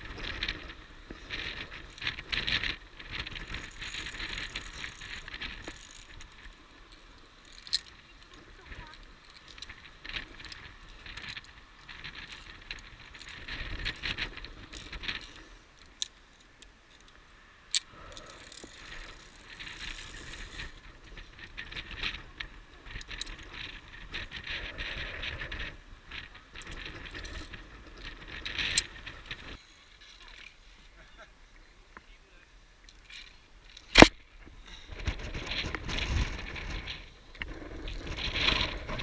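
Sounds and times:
carabiners clinking on steel cable: 0:00.1 - 0:30.6.

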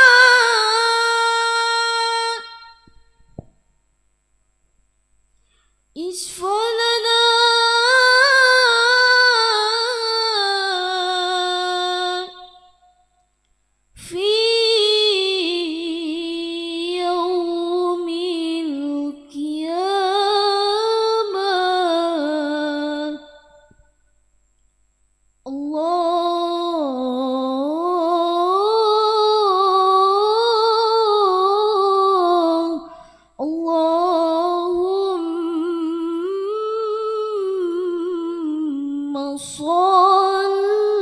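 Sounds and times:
woman singing solo: 0:06.0 - 0:12.8.

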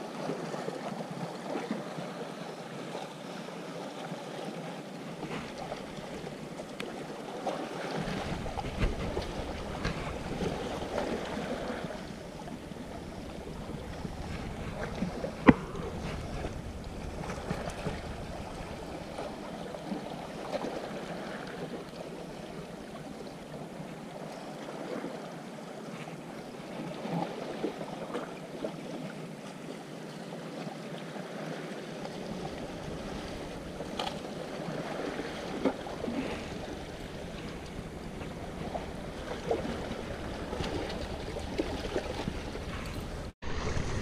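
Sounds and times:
sea water washing on rocks: 0:03.6 - 0:29.4, 0:30.5 - 0:44.0
wind buffeting microphone: 0:08.0 - 0:23.5, 0:32.1 - 0:44.0.

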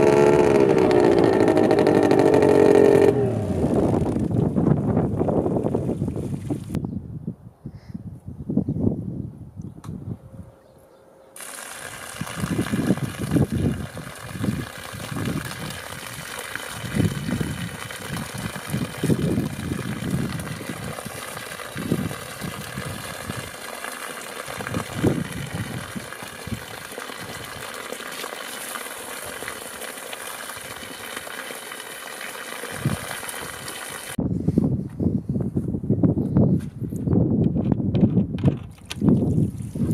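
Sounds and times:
outboard motor running: 0:00.0 - 0:05.6, 0:11.4 - 0:31.4
water stream splashing: 0:11.4 - 0:34.2.

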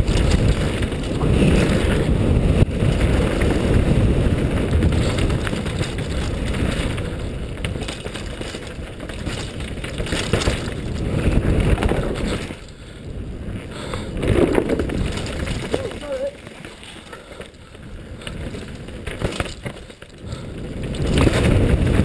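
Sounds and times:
wind on microphone: 0:00.0 - 0:16.5
bike tyres rumbling over gravel: 0:00.0 - 0:22.0.

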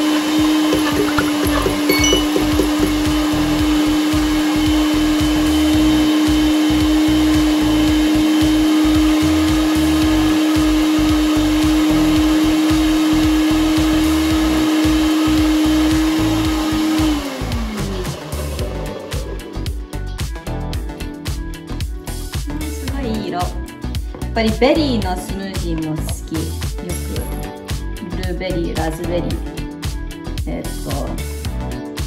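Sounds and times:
blender motor running: 0:00.0 - 0:19.8
blender motor spinning down: 0:00.0 - 0:19.8.

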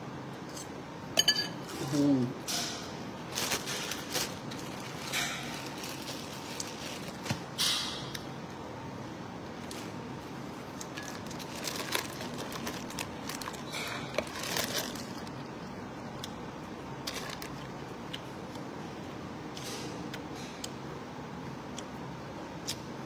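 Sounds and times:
plastic bags crinkling: 0:03.3 - 0:07.6, 0:10.8 - 0:15.6, 0:17.0 - 0:17.8.

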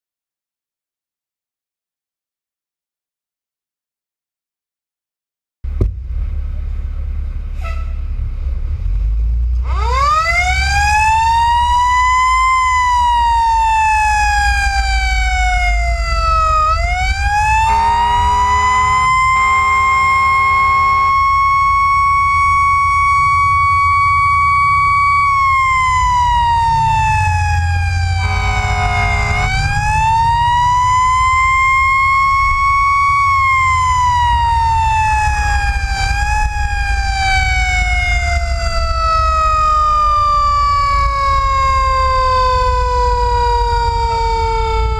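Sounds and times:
engine rumble: 0:05.6 - 0:44.9
deep horn: 0:07.5 - 0:08.2, 0:16.2 - 0:23.9, 0:26.4 - 0:32.0
fire engine siren wailing: 0:09.6 - 0:44.9.

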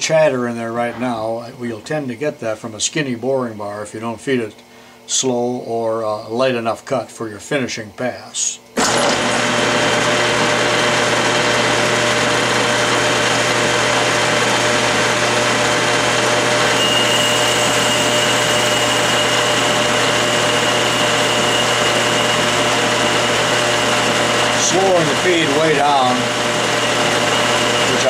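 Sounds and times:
thin high whine: 0:00.0 - 0:06.4, 0:16.6 - 0:28.0
metal lathe running: 0:08.8 - 0:28.0.

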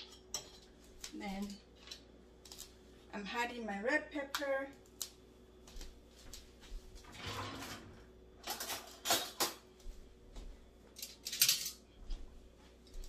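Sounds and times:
kitchen utensils and dishes clinking: 0:00.0 - 0:00.8, 0:07.2 - 0:09.7, 0:11.0 - 0:11.9.

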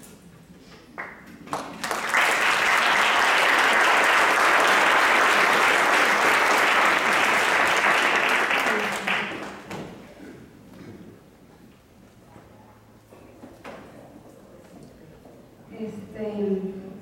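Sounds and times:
audience applauding: 0:01.0 - 0:09.9.

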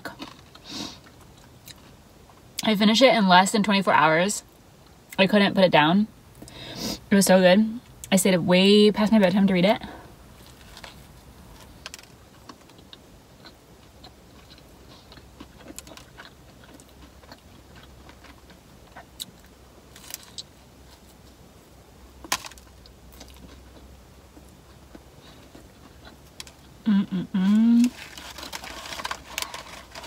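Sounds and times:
person chewing: 0:10.4 - 0:21.4, 0:22.3 - 0:30.0.

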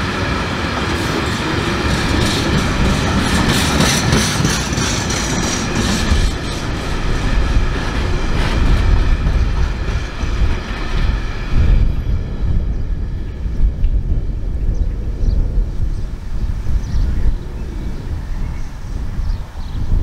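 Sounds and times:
train wheels clattering: 0:00.0 - 0:12.8.

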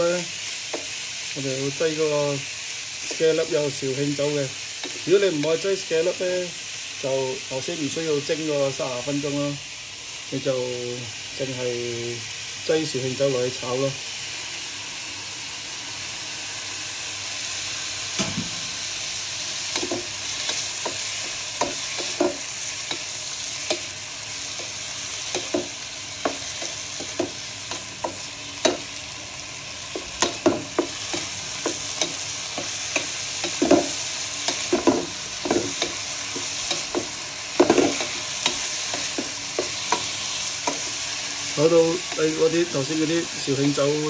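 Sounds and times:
meat sizzling in a frying pan: 0:00.0 - 0:44.0.

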